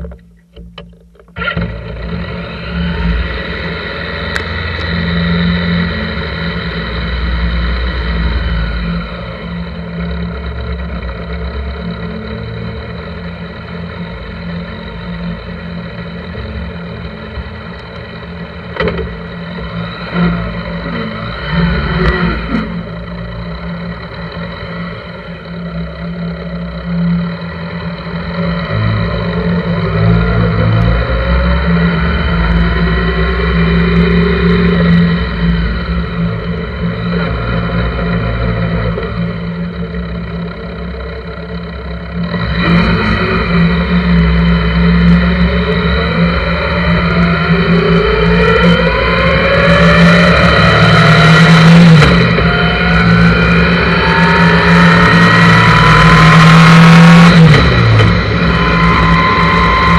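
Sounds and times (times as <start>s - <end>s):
motorcycle engine idling: 0.0s - 47.5s
wind and road noise: 0.0s - 59.9s.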